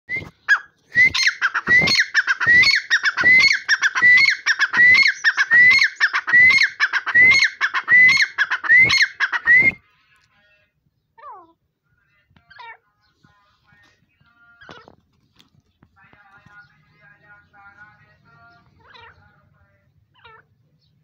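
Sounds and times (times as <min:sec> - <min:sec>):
francolin calling: 0:00.1 - 0:09.8.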